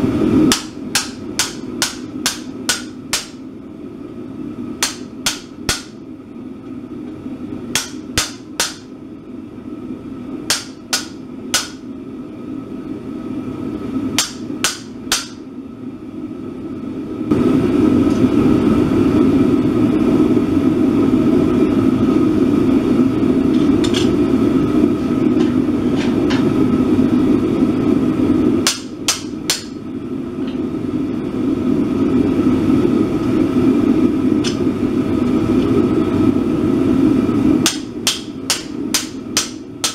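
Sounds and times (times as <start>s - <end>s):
hammer ringing on anvil: 7.8s - 8.9s, 10.5s - 11.8s, 14.2s - 15.4s.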